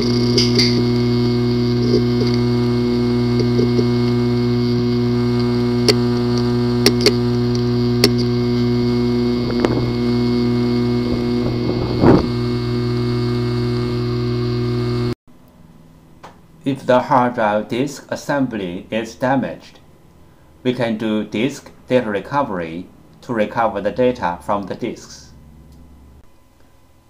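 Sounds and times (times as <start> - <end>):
hard drive clicking: 0.0 - 15.1
hard drive motor hum: 0.0 - 15.2.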